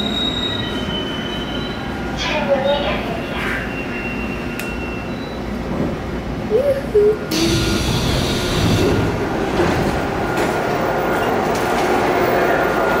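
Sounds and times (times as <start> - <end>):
standing train noise: 0.0 - 13.0
train doors hissing open: 7.3 - 10.1.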